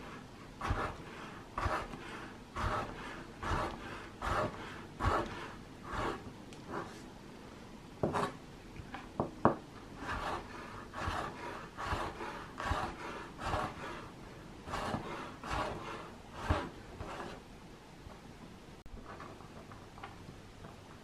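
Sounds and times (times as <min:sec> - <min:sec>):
knife chopping on wooden board: 0:02.6 - 0:06.2, 0:08.0 - 0:08.4.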